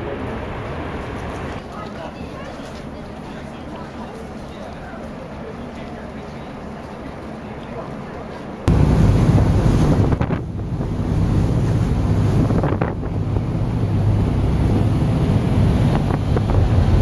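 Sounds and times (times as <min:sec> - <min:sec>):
boat engine rumble: 0:00.0 - 0:17.0
rush of boat wake: 0:00.0 - 0:17.0
wind buffeting microphone: 0:08.7 - 0:17.0.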